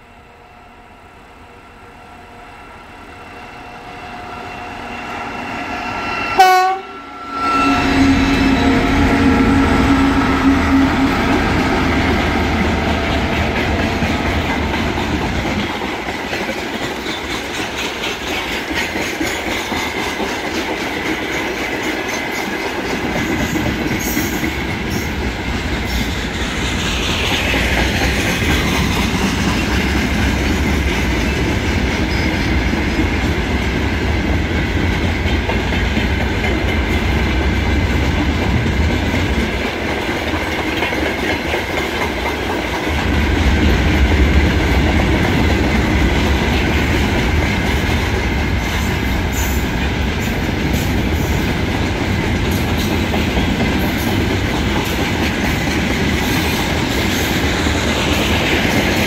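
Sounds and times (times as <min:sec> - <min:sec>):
diesel locomotive engine drone: 0:00.0 - 0:59.0
train horn blast: 0:01.8 - 0:14.5
train wheels clacking over rail joints: 0:08.2 - 0:59.0.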